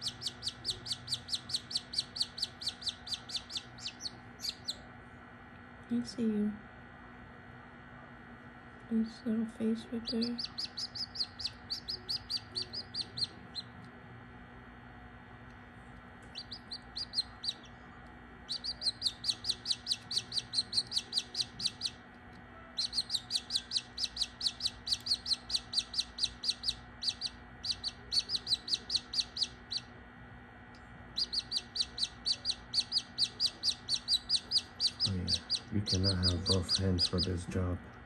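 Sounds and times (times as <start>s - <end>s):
chick peeping: 0.0s - 4.8s, 10.0s - 13.8s, 16.2s - 17.8s, 18.5s - 22.0s, 22.7s - 29.9s, 31.1s - 37.5s.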